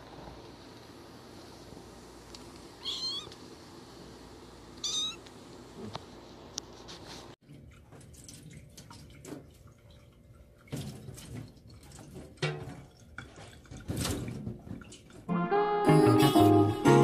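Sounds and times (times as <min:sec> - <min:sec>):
water splashing in sink: 0:07.4 - 0:15.3.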